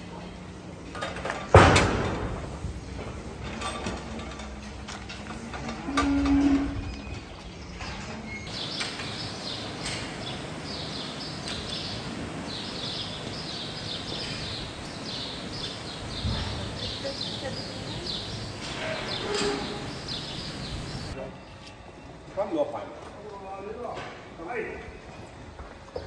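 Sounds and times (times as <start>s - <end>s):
barn background noise: 0.0s - 9.7s
small birds chirping: 6.9s - 22.2s.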